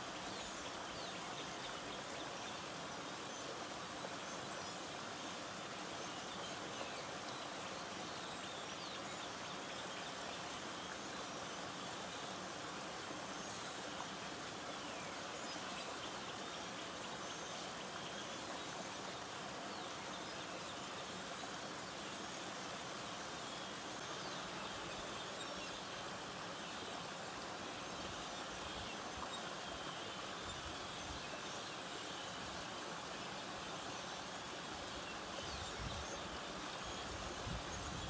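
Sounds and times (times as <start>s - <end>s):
creek water flowing: 0.0s - 38.0s.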